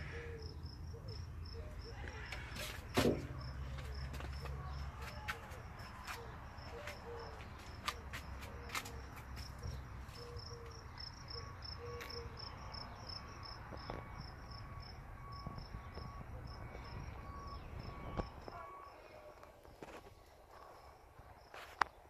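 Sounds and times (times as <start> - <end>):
insects chirping: 0.0 - 22.0
lower repeating chirp: 10.2 - 19.1.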